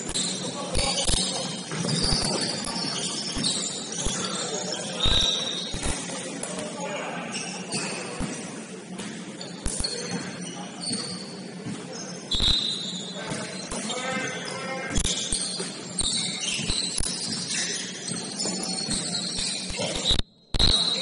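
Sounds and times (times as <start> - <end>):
sneakers squeaking: 0.0 - 21.0
basketball bouncing: 15.0 - 20.0.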